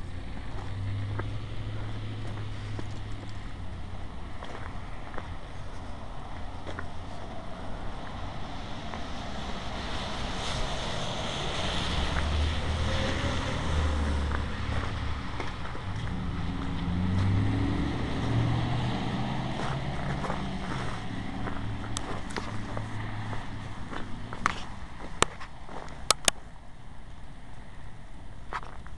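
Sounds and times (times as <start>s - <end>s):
vehicle engine passing: 0.0s - 26.2s
tyres hissing on wet road: 4.0s - 25.0s.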